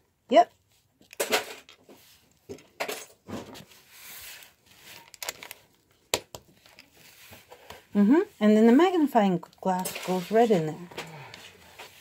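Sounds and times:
plastic bricks clicking: 0:05.1 - 0:06.9.

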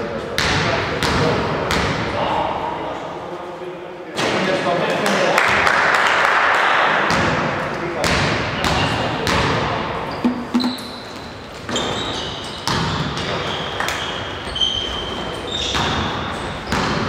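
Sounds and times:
sneakers squeaking: 0:10.1 - 0:17.0
basketball bouncing on floor: 0:10.2 - 0:11.0.

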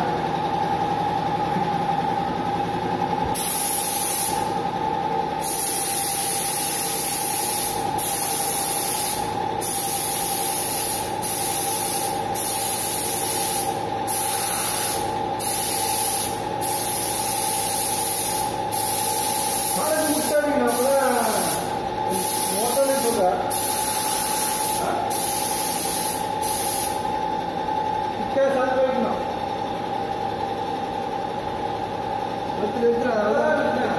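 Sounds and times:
paint spray gun hissing: 0:03.3 - 0:04.5, 0:05.4 - 0:27.1.

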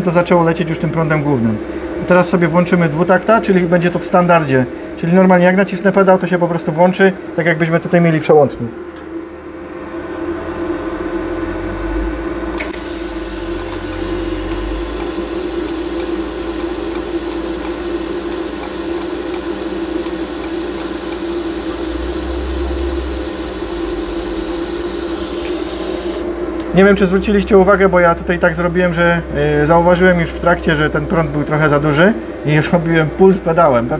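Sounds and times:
welding arc hiss and buzz: 0:12.6 - 0:26.6
welder low hum: 0:12.6 - 0:27.0.

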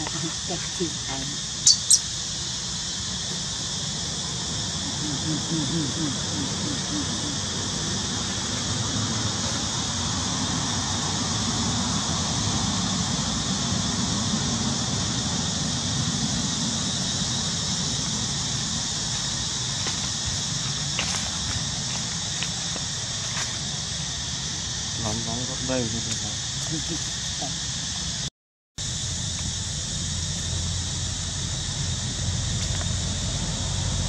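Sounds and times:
high hiss or drone: 0:00.0 - 0:34.0
low rumble: 0:28.8 - 0:34.0.

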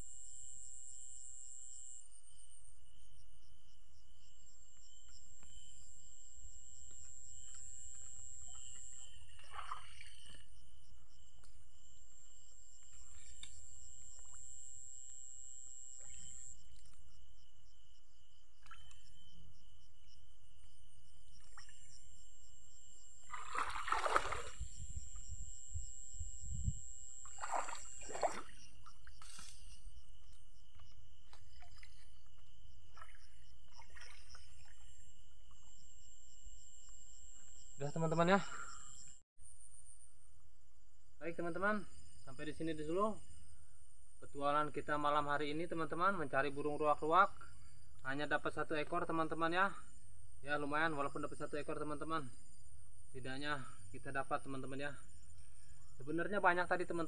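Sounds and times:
insects trilling: 0:00.0 - 0:39.8
water sloshing and splashing: 0:07.4 - 0:11.6, 0:12.8 - 0:14.5, 0:21.3 - 0:22.1, 0:23.2 - 0:25.2, 0:27.2 - 0:35.8.

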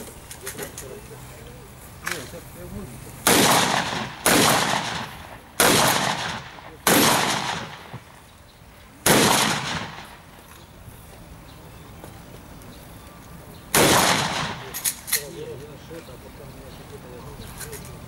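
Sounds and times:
rifle gunshots: 0:03.2 - 0:08.2, 0:09.0 - 0:10.4, 0:13.7 - 0:15.1.

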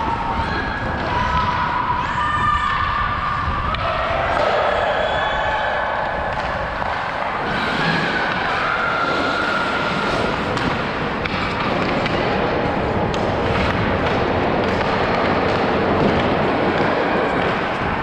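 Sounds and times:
skates scraping on ice: 0:04.3 - 0:18.0
sticks and pucks knocking: 0:06.2 - 0:18.0.

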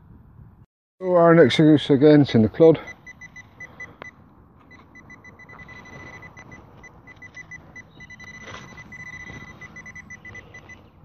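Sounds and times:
metal detector probe beeping: 0:02.8 - 0:11.0
soil scraping: 0:08.2 - 0:09.9.

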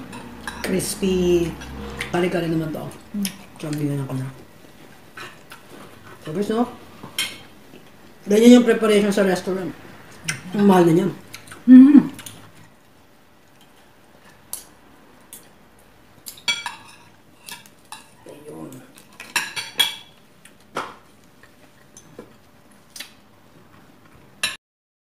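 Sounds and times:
cutlery clinking on plates: 0:00.1 - 0:00.8, 0:16.3 - 0:18.2, 0:19.0 - 0:20.2.

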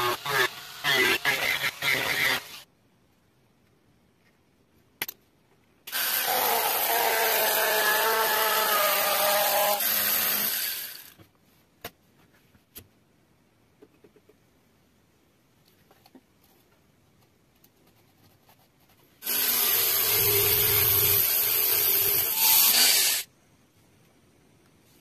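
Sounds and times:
rotary tool grinding plastic: 0:05.9 - 0:11.2, 0:19.2 - 0:23.3.

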